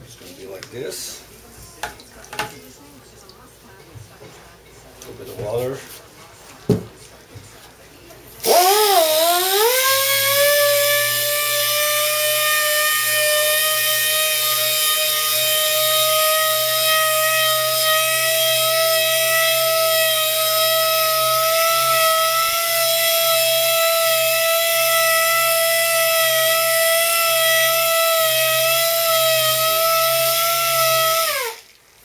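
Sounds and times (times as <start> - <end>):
pneumatic sander whining: 8.4 - 31.6.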